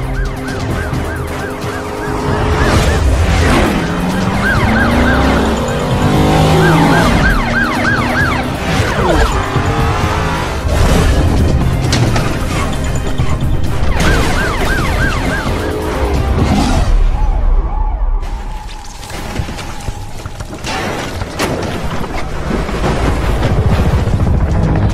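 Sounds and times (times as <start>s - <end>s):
police siren yelping: 0.0s - 10.1s, 12.4s - 18.8s
car engines revving past: 1.9s - 11.8s.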